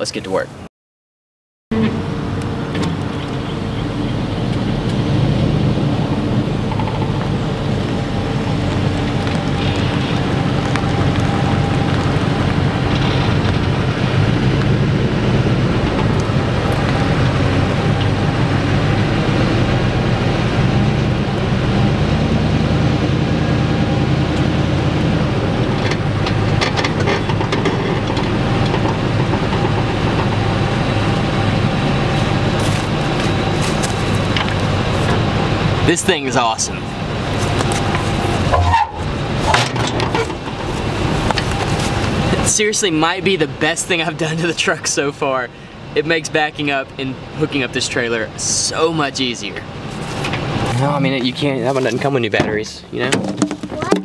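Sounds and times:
pickup truck engine running: 2.0s - 46.2s.

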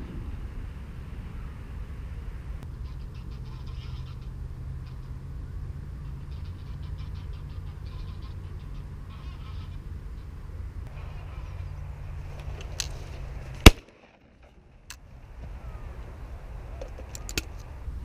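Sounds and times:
geese honking: 2.6s - 13.1s
loud shotgun blast: 13.6s - 14.2s.

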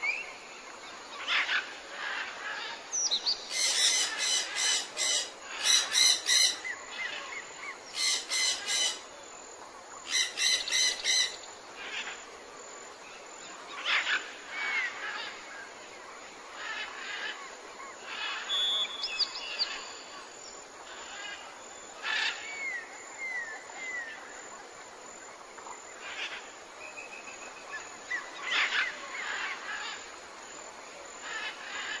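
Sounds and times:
birds calling and singing: 0.0s - 9.1s, 16.5s - 24.3s
background hiss: 0.0s - 32.0s.

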